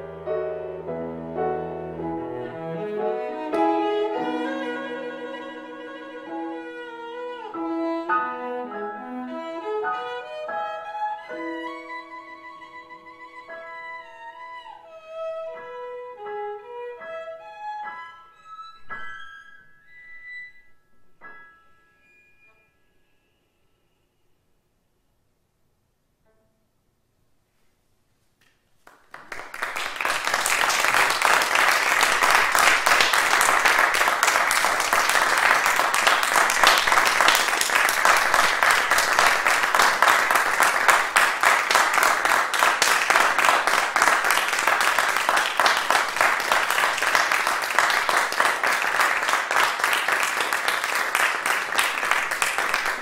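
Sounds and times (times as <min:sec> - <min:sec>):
audience applauding: 0:28.8 - 0:53.0.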